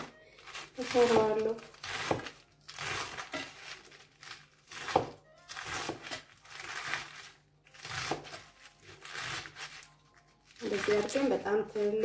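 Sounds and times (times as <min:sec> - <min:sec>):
knife chopping lettuce on board: 0:00.0 - 0:09.9.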